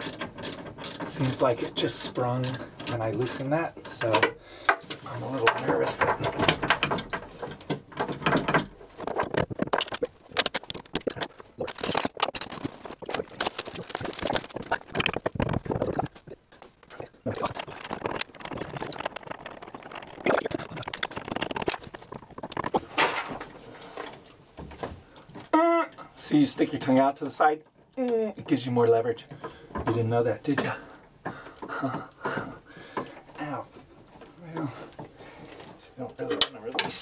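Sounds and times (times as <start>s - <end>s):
metal clinks and knocks: 0.0s - 15.8s, 20.5s - 23.2s.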